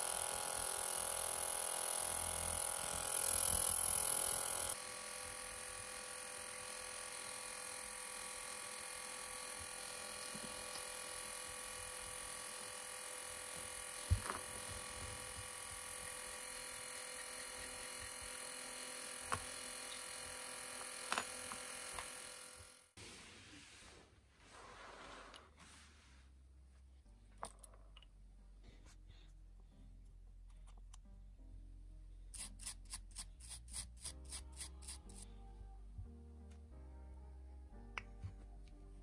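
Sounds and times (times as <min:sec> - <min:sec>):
small parts clicking and tapping: 0:20.8 - 0:22.2.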